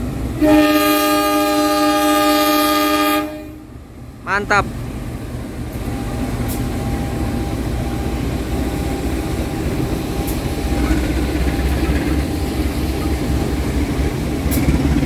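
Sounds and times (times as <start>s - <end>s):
locomotive engine rumble: 0.0s - 15.0s.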